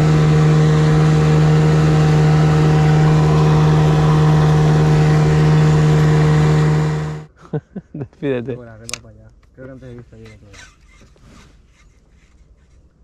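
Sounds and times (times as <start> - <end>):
outboard motor running: 0.0 - 7.3.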